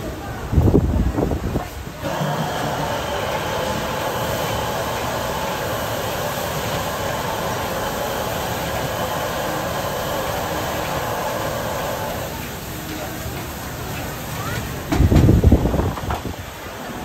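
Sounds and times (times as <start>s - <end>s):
gas burner roaring: 0.0s - 17.0s
meat and peppers sizzling: 2.0s - 14.6s.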